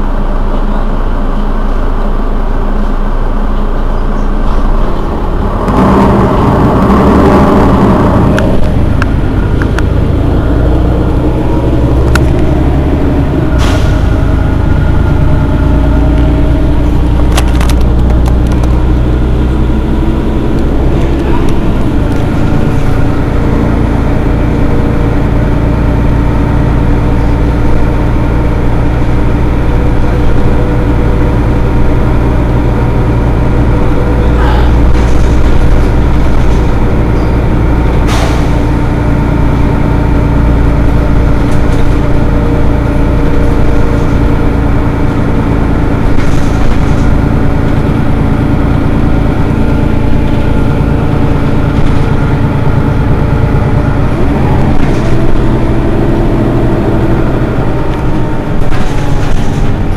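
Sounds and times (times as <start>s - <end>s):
bus engine idling: 0.0s - 59.9s
air brake hiss: 13.6s - 14.1s.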